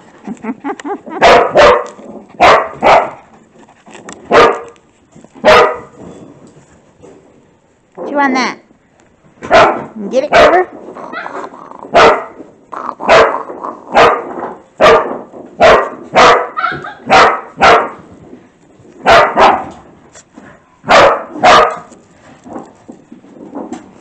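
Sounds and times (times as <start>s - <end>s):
dog barking: 1.2s - 3.2s, 4.3s - 4.7s, 5.4s - 6.0s, 9.4s - 11.3s, 12.0s - 12.4s, 13.1s - 18.0s, 19.0s - 19.7s, 20.8s - 21.9s.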